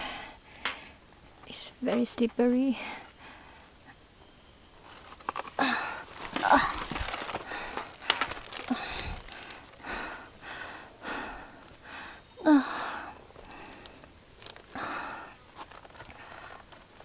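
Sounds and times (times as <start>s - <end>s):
woman breathing hard: 0.0s - 1.1s, 2.8s - 3.8s, 5.5s - 16.8s
woman grunting with effort: 5.6s - 7.0s.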